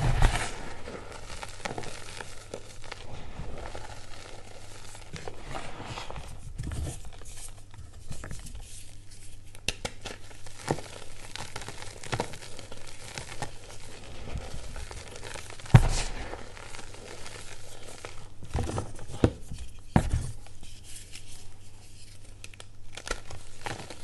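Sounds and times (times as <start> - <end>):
chalk crunching and crackling: 0.0 - 18.4
gritty rustle of powder: 0.0 - 24.0.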